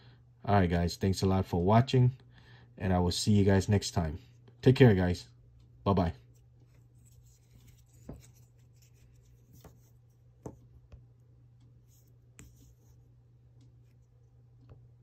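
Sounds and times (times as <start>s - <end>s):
faint low hum: 0.0s - 15.0s
faint clicks and taps: 5.5s - 15.0s.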